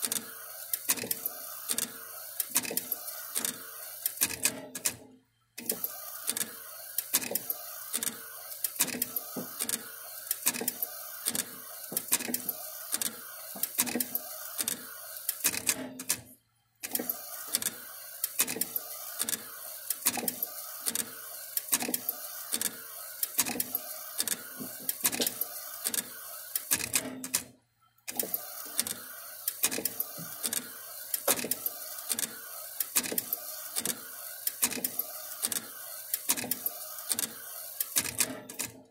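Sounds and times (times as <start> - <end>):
steady printer hiss: 0.0 - 38.9
printer carriage clicking: 28.1 - 38.8.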